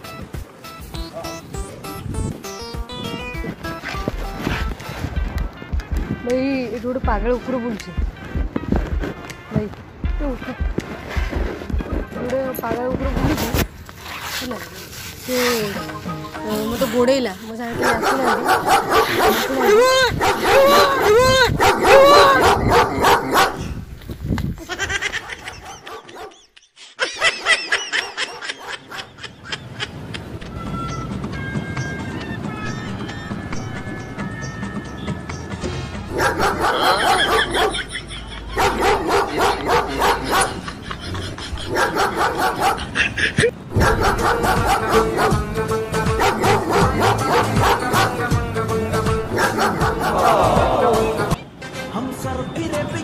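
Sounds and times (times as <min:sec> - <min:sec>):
recorded dog barking: 0:17.7 - 0:23.8, 0:25.6 - 0:26.4, 0:36.1 - 0:37.9, 0:38.5 - 0:40.7, 0:41.7 - 0:43.0, 0:43.7 - 0:45.5, 0:46.1 - 0:48.4, 0:49.3 - 0:50.9
high-pitched dog yelps: 0:17.8 - 0:23.7, 0:36.1 - 0:37.9, 0:38.5 - 0:40.6, 0:41.6 - 0:45.4, 0:46.2 - 0:48.2, 0:49.4 - 0:50.5.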